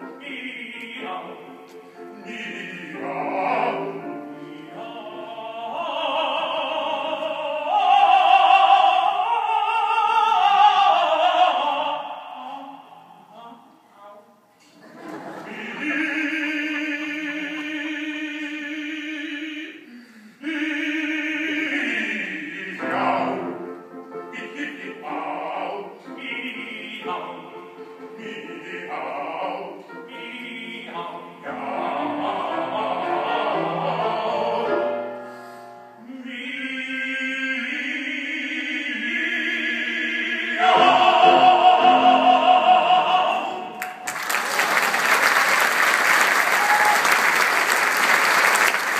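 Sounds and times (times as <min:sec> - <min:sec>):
two men singing opera duet: 0:00.0 - 0:13.8, 0:15.2 - 0:44.1
applause: 0:43.8 - 0:48.9.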